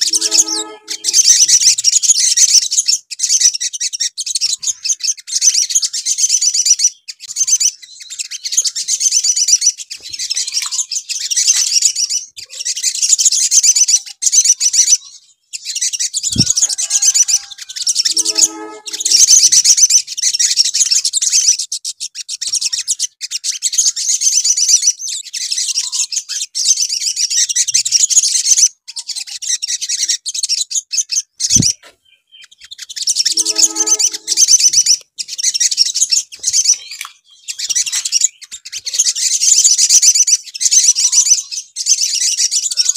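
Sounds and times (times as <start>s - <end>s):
brief lower-pitched sound: 0.0s - 1.4s, 18.1s - 19.4s, 33.3s - 34.6s
sunbird singing: 16.2s - 19.6s, 31.5s - 42.9s.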